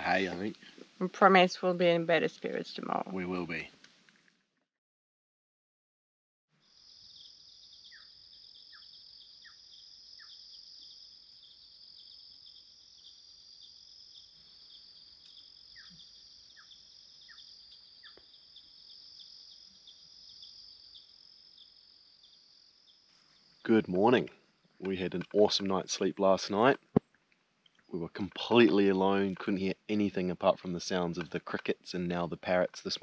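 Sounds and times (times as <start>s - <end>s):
crickets chirring: 0.0s - 3.5s, 6.6s - 26.8s.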